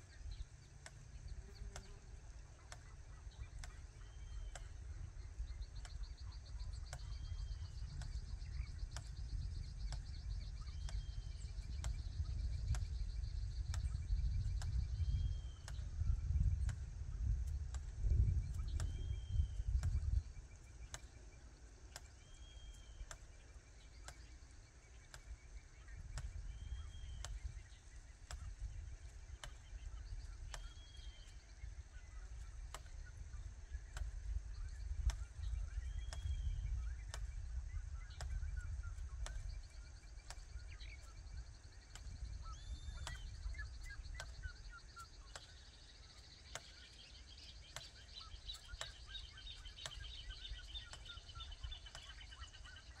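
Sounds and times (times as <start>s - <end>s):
bird calling: 0.0s - 16.0s, 18.4s - 53.0s
sharp clicks: 0.3s - 53.0s
insects trilling: 18.1s - 53.0s.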